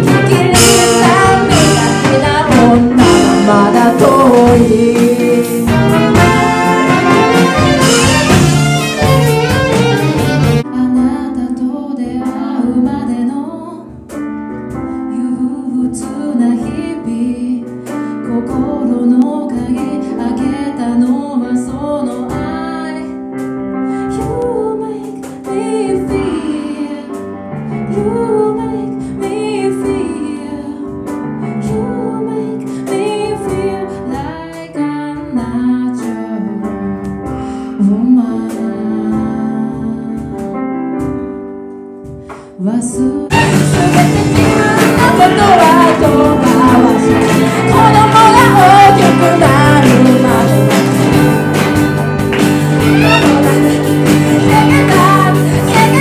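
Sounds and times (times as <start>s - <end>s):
woman singing slow song: 0.0s - 6.6s, 10.6s - 14.0s, 14.9s - 23.3s, 24.0s - 27.2s, 27.8s - 40.5s, 42.5s - 50.8s, 52.9s - 56.0s
live band with brass section: 0.0s - 10.7s, 43.3s - 56.0s
keyboard playing: 0.0s - 56.0s.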